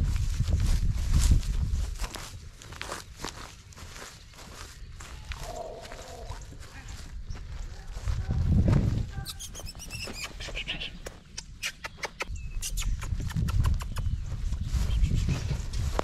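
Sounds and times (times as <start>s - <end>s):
low rumbles on microphone: 0.0s - 2.2s, 5.3s - 9.2s, 12.4s - 16.0s
puppies scuffling in grass: 0.0s - 10.4s, 14.3s - 16.0s.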